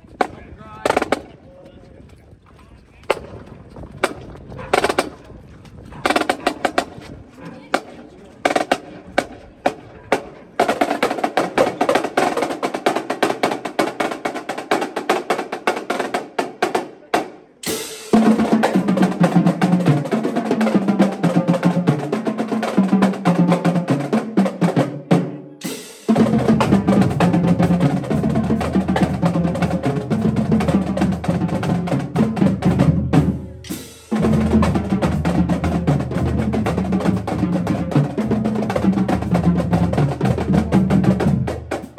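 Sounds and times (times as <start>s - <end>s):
pitched bass drums: 26.0s - 41.9s.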